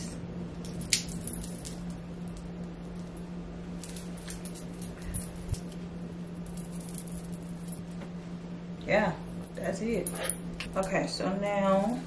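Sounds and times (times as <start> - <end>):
low electrical hum: 0.0 - 12.0
metallic clinks of bracelet chains: 0.6 - 3.1, 9.4 - 12.0.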